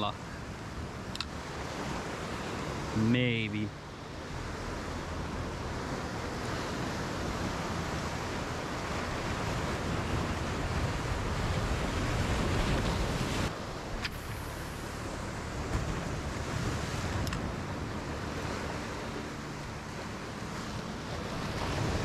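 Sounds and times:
surf washing on shore: 0:00.0 - 0:22.0
sharp click: 0:01.1 - 0:01.3
wind buffeting microphone: 0:03.7 - 0:22.0.

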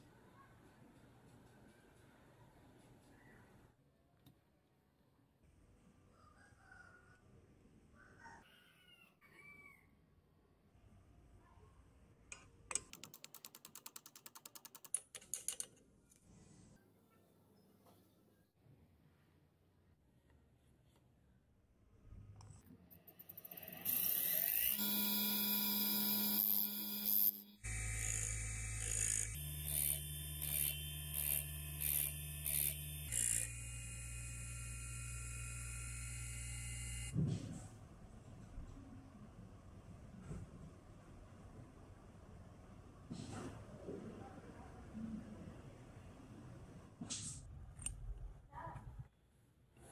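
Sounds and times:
drill bit grinding rasps: 0:23.8 - 0:37.1
bench grinder running: 0:23.8 - 0:37.2.

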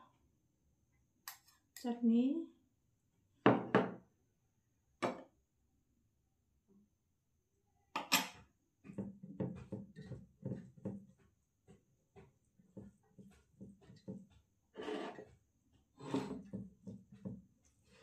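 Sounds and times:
ceramic bowl knocking on table: 0:03.5 - 0:04.0
tableware clatter: 0:08.0 - 0:08.4.

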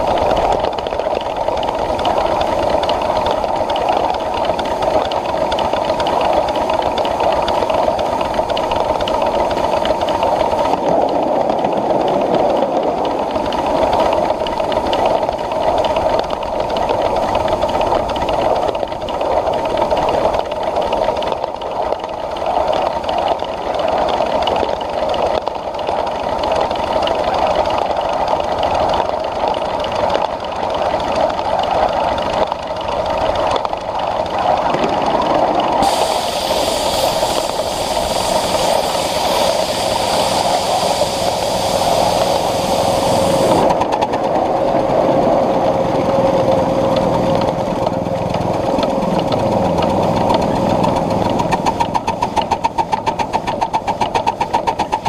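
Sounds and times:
wheels running on rails: 0:00.0 - 0:55.0
high steam hiss: 0:35.8 - 0:43.8.

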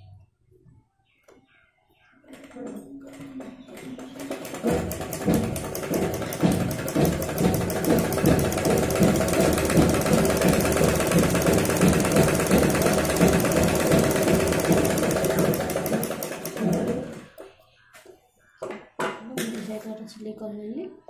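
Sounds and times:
sewing machine stitching: 0:02.3 - 0:17.4.

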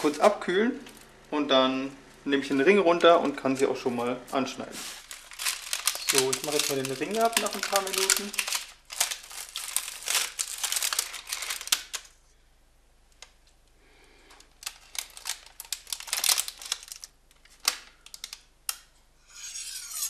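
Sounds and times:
baking paper rustling: 0:00.0 - 0:01.1, 0:03.4 - 0:12.2, 0:14.4 - 0:18.4
knife scraping through crisp crust: 0:19.3 - 0:20.0.

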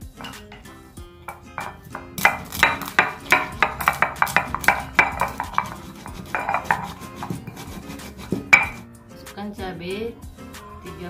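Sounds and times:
pestle crushing peppercorns: 0:01.3 - 0:08.8.

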